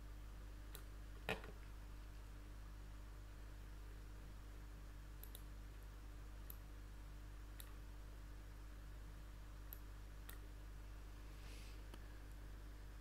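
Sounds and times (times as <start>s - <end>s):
low steady hum: 0.0s - 13.0s
computer mouse clicks: 5.2s - 5.5s, 7.6s - 7.8s.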